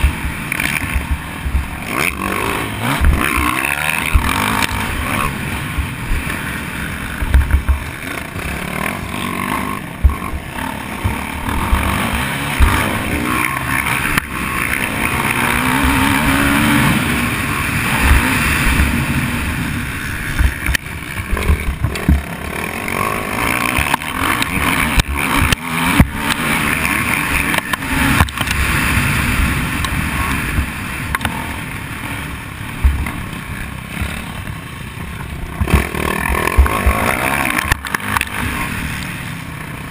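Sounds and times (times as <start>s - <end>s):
bike thumping over bumps: 0.0s - 2.2s, 2.8s - 6.3s, 6.9s - 8.5s, 9.8s - 14.6s, 20.3s - 22.9s, 32.8s - 34.2s, 35.0s - 38.2s
dirt bike engine revving: 0.0s - 39.9s
rushing wind: 0.0s - 39.9s.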